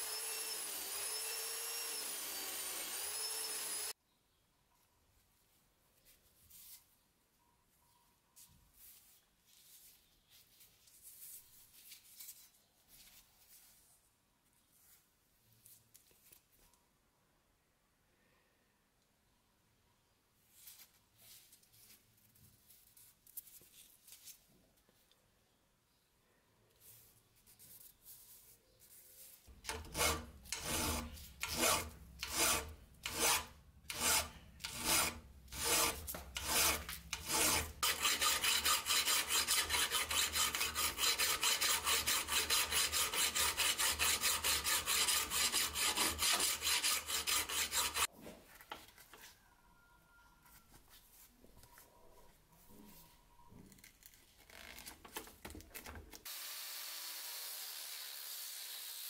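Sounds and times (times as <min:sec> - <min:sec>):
file scraping steel blade: 0:00.0 - 0:03.9, 0:29.5 - 0:48.1
faint handling sounds: 0:04.8 - 0:17.0, 0:20.4 - 0:25.6, 0:26.6 - 0:29.6.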